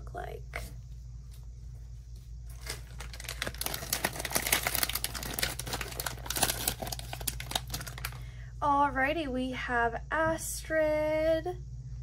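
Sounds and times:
foil bag crinkling: 2.4 - 8.3.

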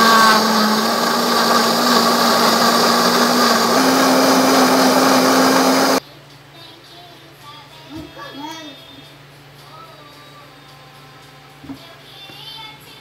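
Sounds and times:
blender motor whine: 0.0 - 6.0
liquid churning: 0.0 - 6.0.

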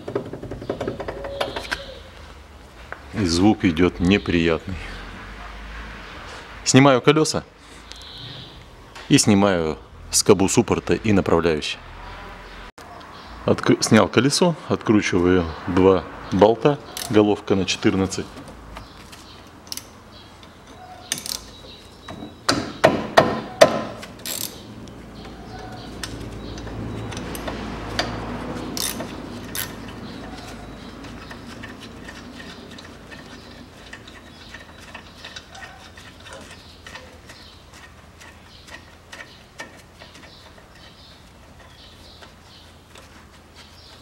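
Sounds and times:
ratchet wrench clicking: 17.0 - 17.2, 19.6 - 19.9, 21.1 - 21.5, 24.2 - 24.7, 26.0 - 41.2
metallic knocks: 20.5 - 24.1.

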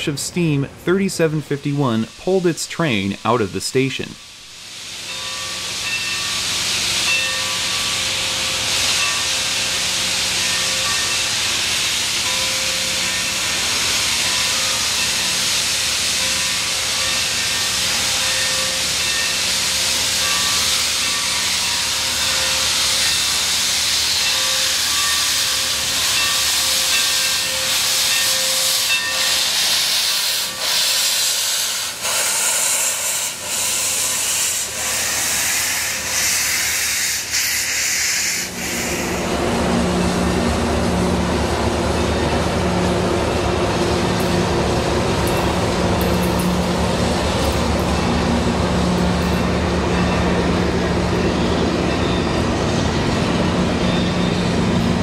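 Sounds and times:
steam locomotive hissing: 0.0 - 55.0.

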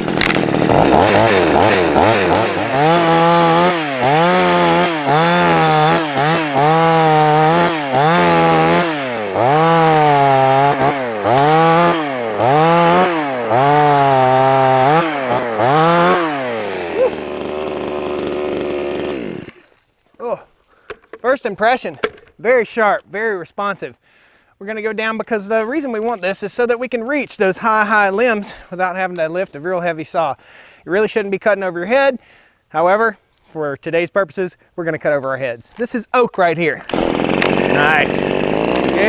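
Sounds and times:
chainsaw revving and idling: 0.0 - 19.7, 36.8 - 39.0.

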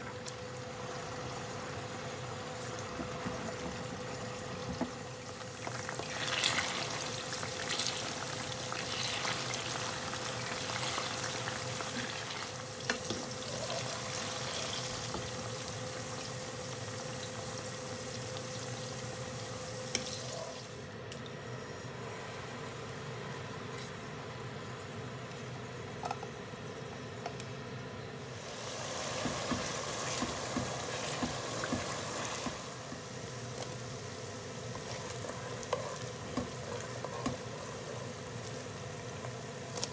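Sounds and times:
tofu sizzling in hot oil: 5.1 - 20.8, 28.3 - 39.9.

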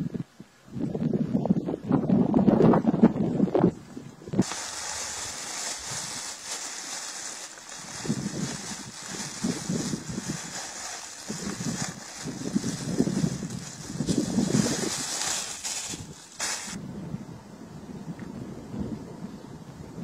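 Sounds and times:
steady outdoor hiss: 0.0 - 20.0
plastic bag rustling: 4.4 - 16.8.

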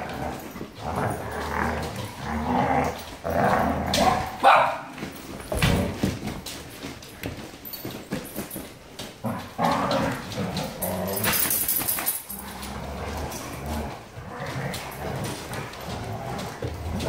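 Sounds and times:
dogs whining and growling: 0.0 - 4.4, 7.8 - 17.0
paws scuffling on hard floor: 0.0 - 17.0.

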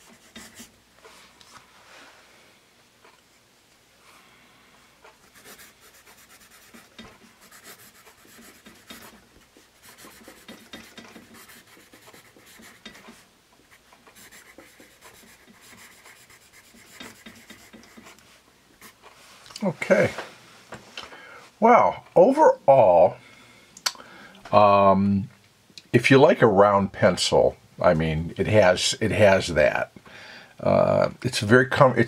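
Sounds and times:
pencil scratching on paper: 0.0 - 0.7, 5.2 - 19.0.

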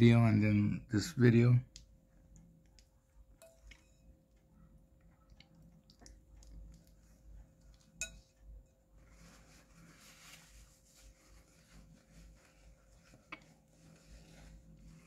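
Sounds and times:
spoon clicking on ceramic bowl: 3.4 - 3.9, 8.0 - 8.3
paper napkin rustling: 9.0 - 15.0.

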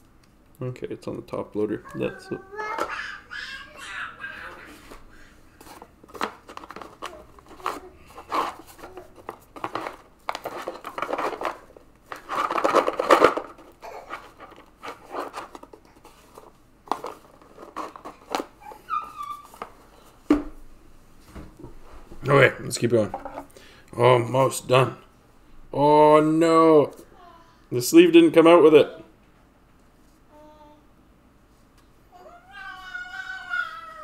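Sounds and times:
plastic sleeves crinkling: 5.6 - 20.1.

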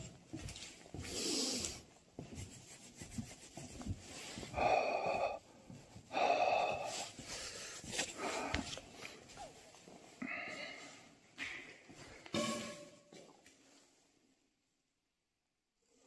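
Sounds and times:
person blowing breath into hands: 4.2 - 5.5.

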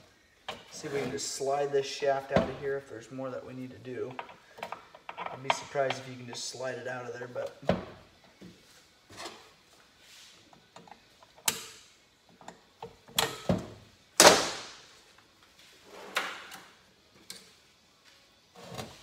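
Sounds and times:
metal parts and tools clanking: 4.0 - 6.5.

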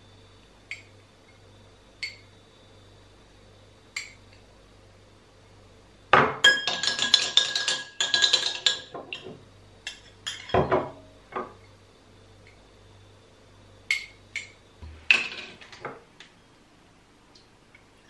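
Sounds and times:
glasses set down on countertop: 6.1 - 9.4, 10.3 - 11.6
spoon clinking against glasses: 6.4 - 10.7.

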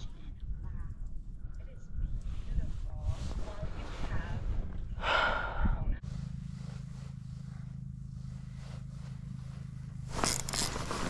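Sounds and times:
steady low hum: 0.0 - 11.0
rustling and scraping: 2.2 - 4.9, 6.0 - 11.0.

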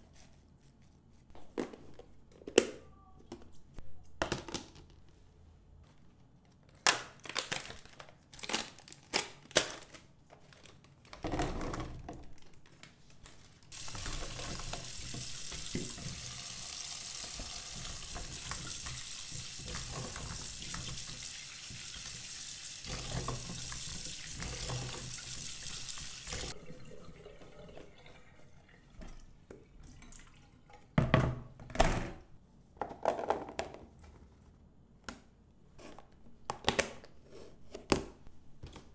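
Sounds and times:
kitchen tap running into sink: 13.7 - 30.9.

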